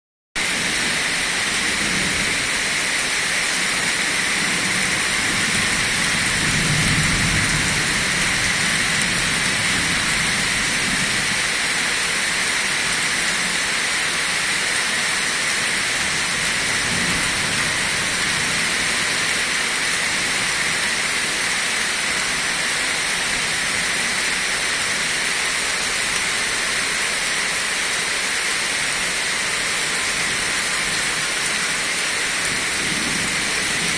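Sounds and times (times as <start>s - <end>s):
heavy rain on foliage: 0.4s - 33.9s.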